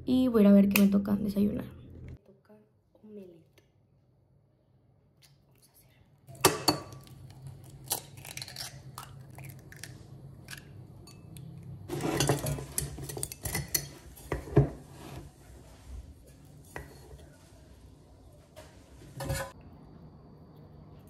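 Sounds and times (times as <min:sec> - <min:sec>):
dishes and utensils clinking: 0:11.9 - 0:15.3.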